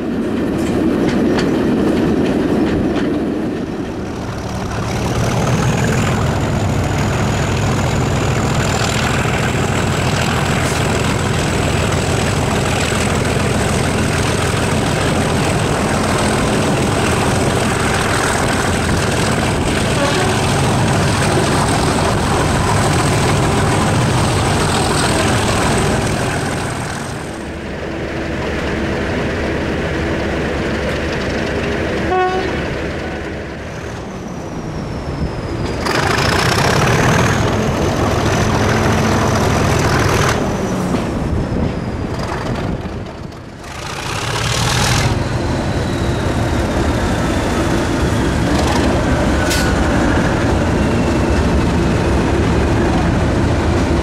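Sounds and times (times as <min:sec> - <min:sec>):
diesel locomotive engine: 0:00.0 - 0:54.0
train horn note: 0:19.9 - 0:20.7, 0:32.1 - 0:32.7.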